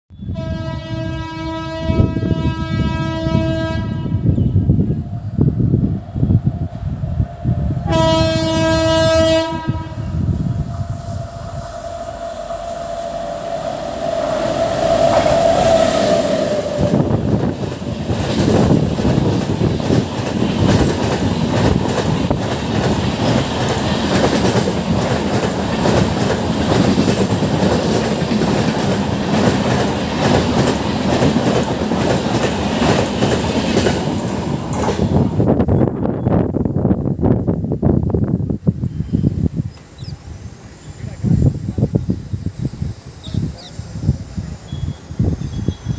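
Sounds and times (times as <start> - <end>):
locomotive horn: 0.2 - 4.4, 7.8 - 10.3
train wheels clattering over rail joints: 17.4 - 35.1.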